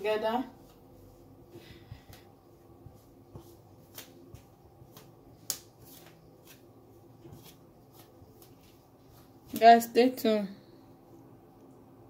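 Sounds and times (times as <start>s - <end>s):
fingers rustling in flour: 0.2s - 9.8s.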